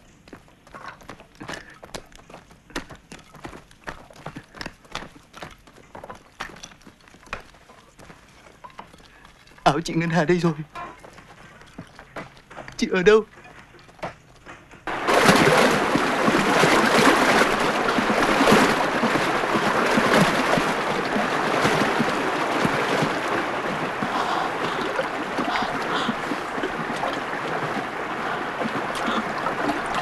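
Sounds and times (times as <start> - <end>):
water gushing: 14.9 - 30.0.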